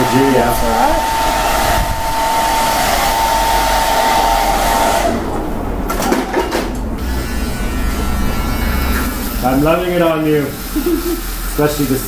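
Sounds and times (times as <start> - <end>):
electric shaver whining: 0.0 - 5.2, 7.0 - 9.4.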